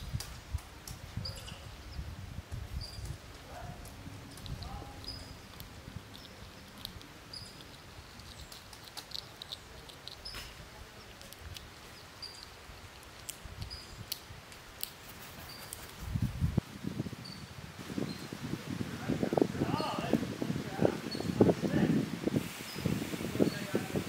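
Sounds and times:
small birds chirping: 0:00.9 - 0:16.5, 0:17.2 - 0:18.5, 0:19.6 - 0:21.8, 0:22.6 - 0:24.0
crow wings fluttering: 0:03.0 - 0:10.6, 0:14.5 - 0:16.6.

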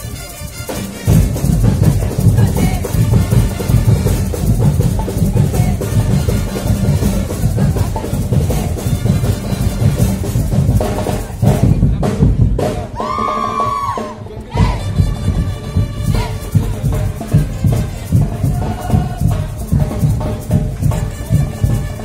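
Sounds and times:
parade percussion drumming: 0:00.0 - 0:22.0.

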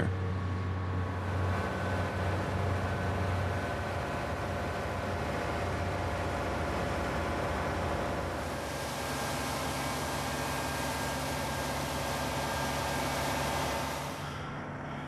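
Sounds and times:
heavy industrial machinery drone: 0:00.0 - 0:15.0.

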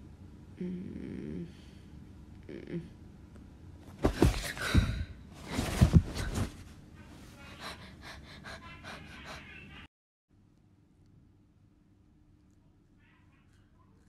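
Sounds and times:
rustling: 0:05.4 - 0:06.8.

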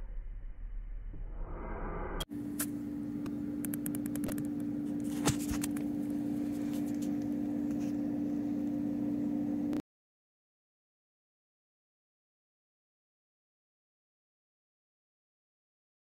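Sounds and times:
electrical hum: 0:00.4 - 0:09.8.

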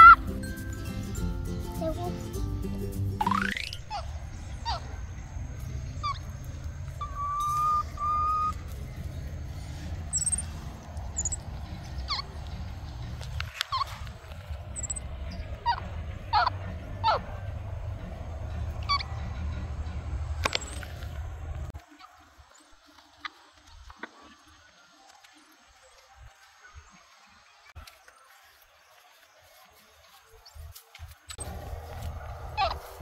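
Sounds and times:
very high chirps: 0:03.2 - 0:05.0, 0:07.0 - 0:08.6, 0:10.1 - 0:12.3, 0:14.8 - 0:15.8
steady low rumble: 0:03.8 - 0:07.1, 0:07.9 - 0:21.8, 0:31.3 - 0:33.0
high whistled animal calls: 0:06.0 - 0:06.3, 0:06.9 - 0:08.6, 0:10.1 - 0:11.4, 0:14.8 - 0:15.0.

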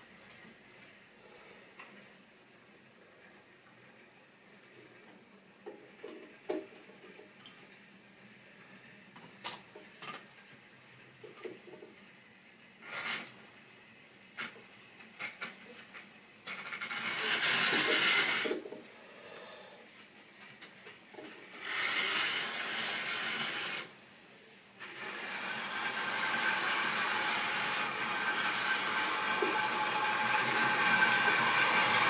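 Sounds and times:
model train clicking on track: 0:14.4 - 0:18.7, 0:20.4 - 0:23.9, 0:24.8 - 0:32.0.

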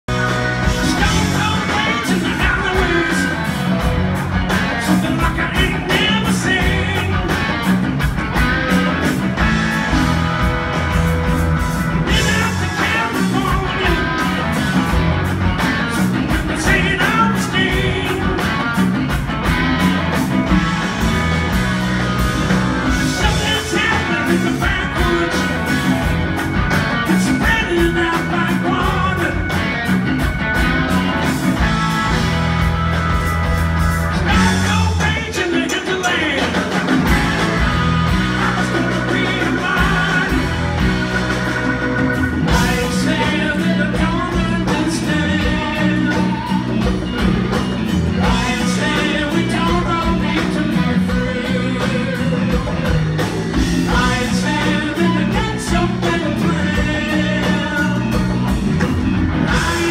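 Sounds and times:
rock band playing live: 0:00.0 - 0:59.9
man singing: 0:00.7 - 0:03.6, 0:04.7 - 0:07.4, 0:12.0 - 0:14.5, 0:16.3 - 0:18.5, 0:22.9 - 0:25.8, 0:27.1 - 0:29.6, 0:34.2 - 0:36.8, 0:38.3 - 0:40.8, 0:42.5 - 0:46.9, 0:48.2 - 0:52.9, 0:53.9 - 0:58.5, 0:59.4 - 0:59.9.

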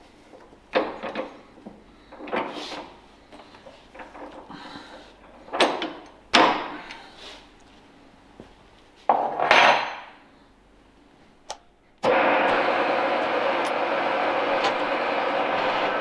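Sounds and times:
milling machine spindle running: 0:12.0 - 0:16.0.

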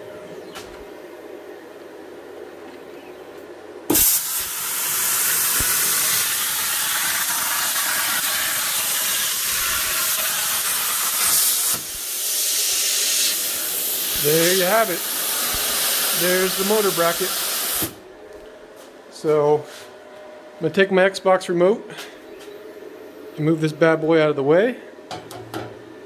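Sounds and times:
plasma cutter arc hissing: 0:03.9 - 0:18.0.

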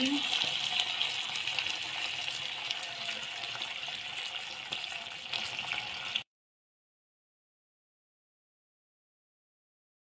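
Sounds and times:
curry sizzling in a pan: 0:00.0 - 0:06.3.

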